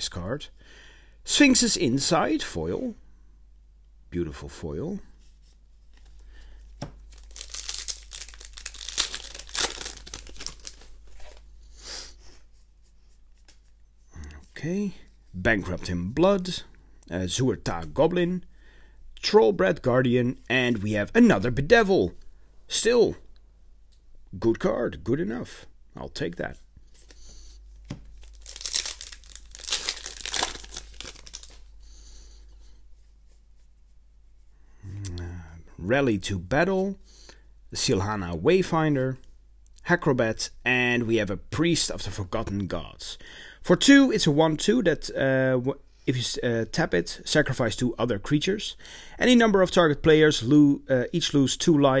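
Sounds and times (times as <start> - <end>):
cards rustling and clicking: 5.8 - 11.5, 26.9 - 31.7
wrapper crinkling and tearing: 7.0 - 11.5, 28.1 - 31.7.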